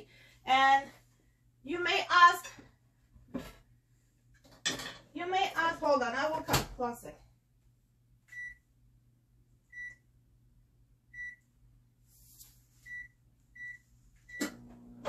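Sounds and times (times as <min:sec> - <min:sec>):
microwave low hum: 0:05.8 - 0:15.0
microwave oven click: 0:14.4 - 0:14.8.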